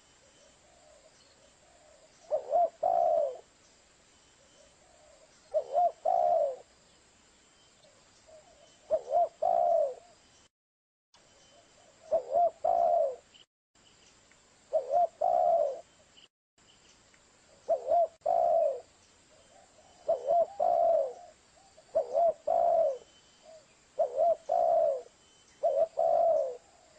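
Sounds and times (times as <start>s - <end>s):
dove cooing: 0.6s - 3.5s, 4.8s - 6.7s, 8.3s - 10.2s, 11.9s - 13.3s, 14.7s - 15.9s, 17.6s - 18.9s, 19.5s - 26.9s.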